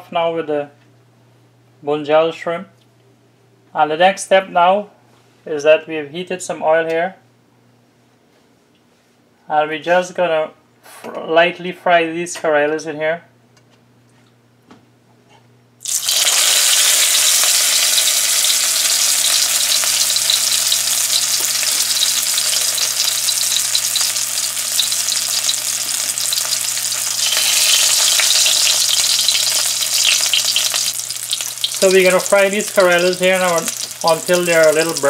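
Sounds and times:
food sizzling in hot oil: 15.8s - 35.0s.

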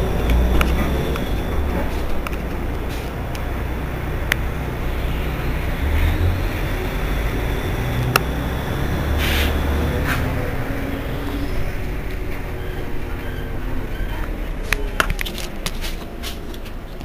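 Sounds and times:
bus engine idling: 0.0s - 17.0s
short air hiss: 9.2s - 9.6s.

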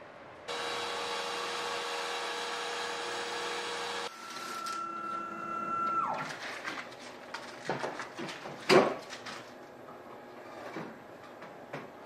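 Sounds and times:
router spindle cutting aluminum: 0.5s - 4.1s.

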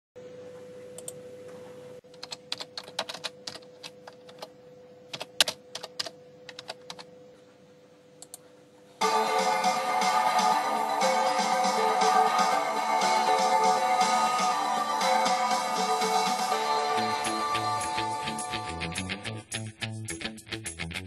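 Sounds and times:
faint steady hum: 0.2s - 19.2s
keyboard keys clicking: 2.1s - 4.5s, 5.1s - 7.1s
music track: 9.0s - 21.0s.

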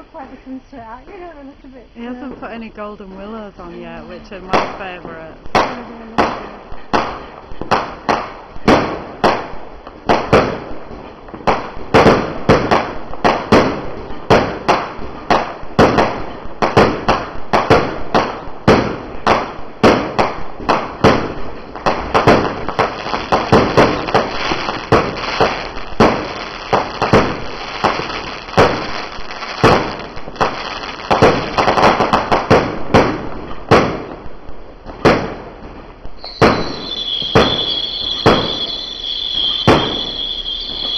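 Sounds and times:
fireworks shots and bursts: 2.0s - 40.9s
steady hiss: 20.4s - 32.9s.

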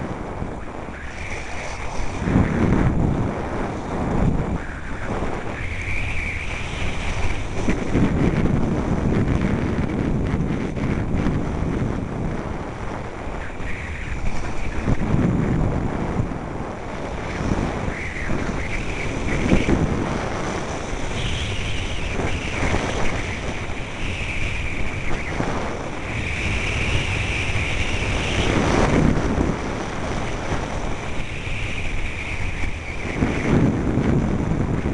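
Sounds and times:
wind buffeting microphone: 0.0s - 34.9s
skis hissing on snow: 1.0s - 2.7s, 13.3s - 15.2s, 17.0s - 29.1s.

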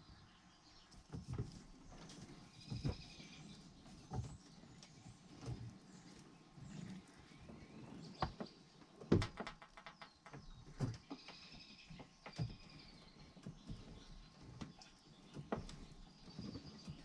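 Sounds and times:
light clicks and knocks: 8.1s - 17.0s.

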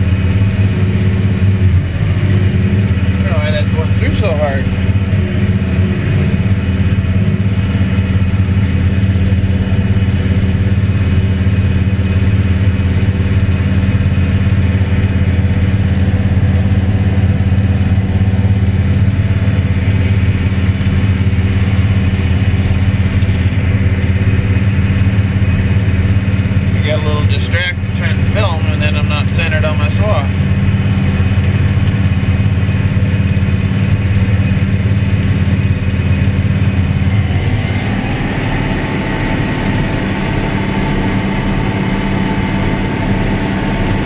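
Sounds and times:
combine harvester droning: 0.0s - 44.0s.

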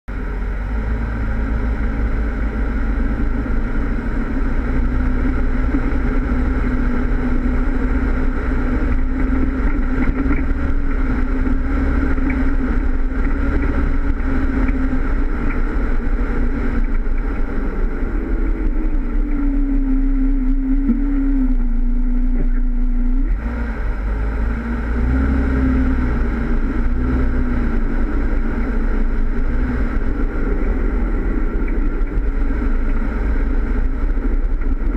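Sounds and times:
car engine running: 0.0s - 34.9s.

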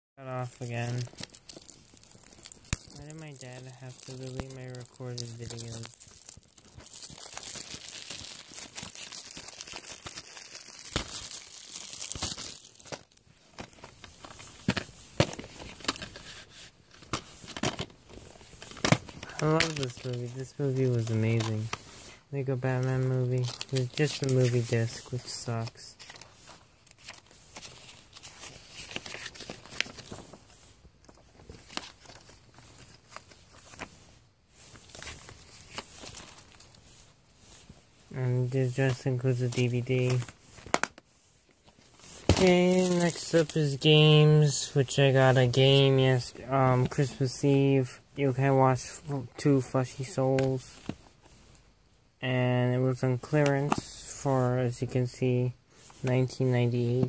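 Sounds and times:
plastic wrap tearing and crinkling: 0.3s - 34.0s, 34.6s - 36.8s, 41.7s - 44.5s
paper leaflet rustling: 0.4s - 37.8s, 41.6s - 47.4s.

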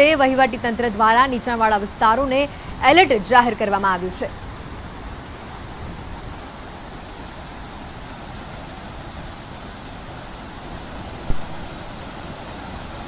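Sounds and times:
water rushing from spillway: 0.0s - 13.0s
short thump: 11.3s - 11.6s.

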